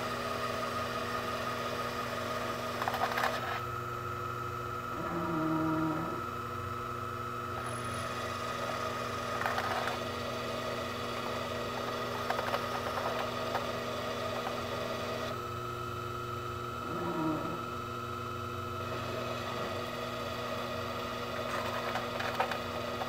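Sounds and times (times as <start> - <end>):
lathe motor hum: 6.0 - 23.0.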